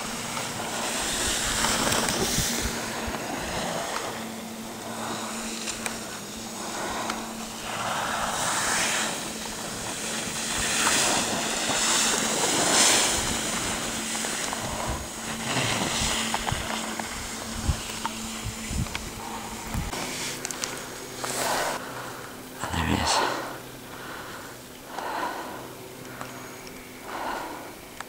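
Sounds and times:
skis scraping on snow: 0:00.0 - 0:22.4.

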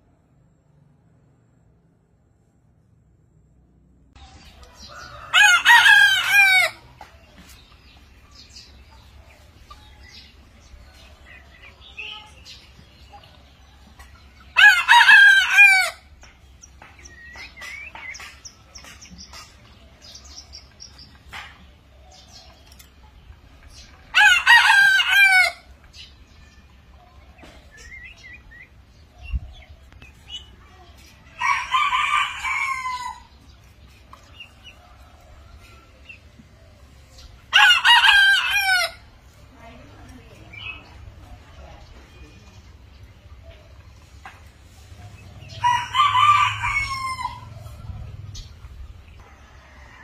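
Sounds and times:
faint chirps and clucks: 0:00.0 - 0:50.0
rooster crowing: 0:04.8 - 0:06.8, 0:45.6 - 0:47.6.

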